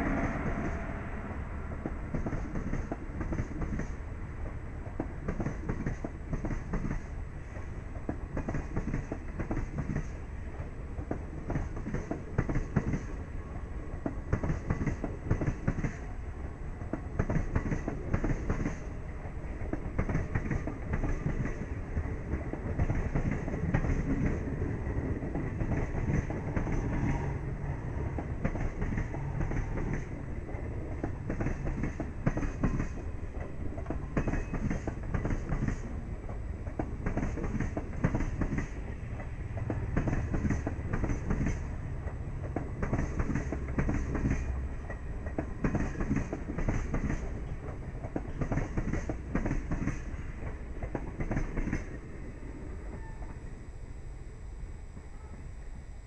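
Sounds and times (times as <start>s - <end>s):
steady low rumble: 0.0s - 4.4s
train wheels clattering over rail joints: 1.8s - 13.2s, 16.8s - 52.0s.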